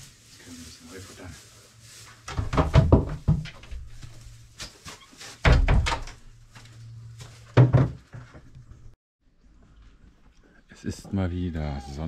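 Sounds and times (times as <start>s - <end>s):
plastic bucket and wooden boards knocking: 2.3s - 3.9s, 7.6s - 8.4s.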